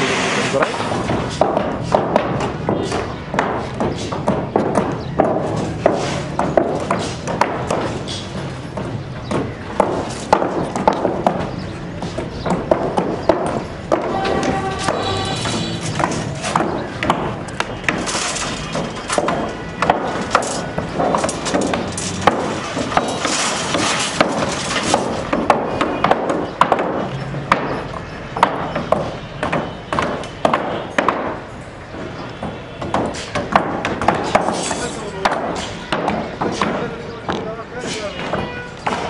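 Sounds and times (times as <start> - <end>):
building site noise: 0.0 - 39.0
knocks on wooden planks: 0.6 - 39.0.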